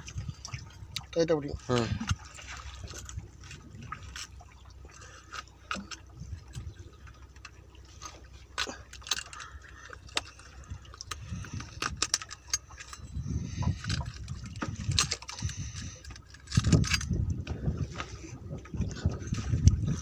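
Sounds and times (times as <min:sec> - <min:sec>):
boat rumbling on water: 0:00.0 - 0:20.0
metal rod clicking and scraping: 0:08.0 - 0:17.2.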